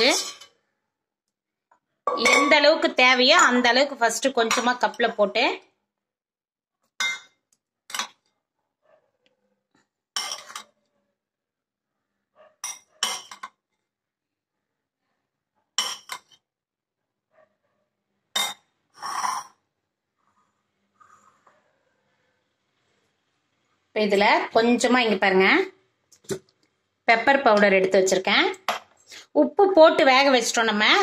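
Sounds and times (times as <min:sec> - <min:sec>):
metal spoon clinking on ceramic: 0:02.1 - 0:02.7, 0:07.0 - 0:08.2, 0:10.2 - 0:10.7, 0:12.6 - 0:13.5.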